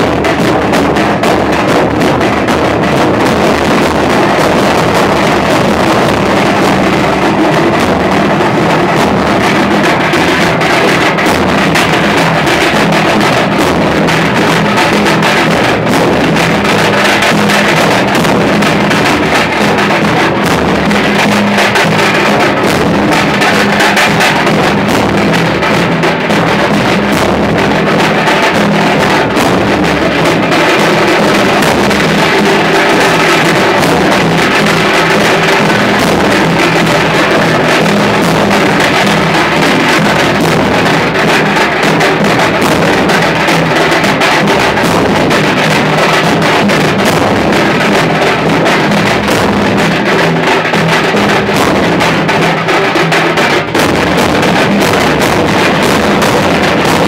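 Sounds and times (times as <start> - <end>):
barrel drums beating: 0.0 - 57.0.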